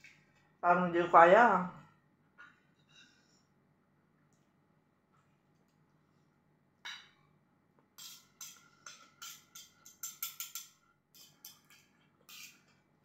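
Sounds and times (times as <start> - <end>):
cutlery clicking on plate: 8.0 - 12.7.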